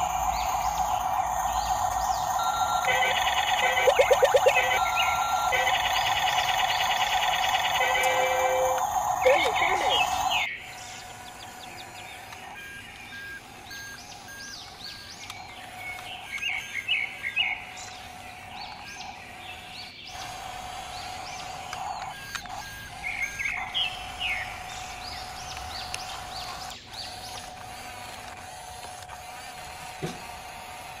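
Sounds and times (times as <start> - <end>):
steady tone: 0.0 - 10.5.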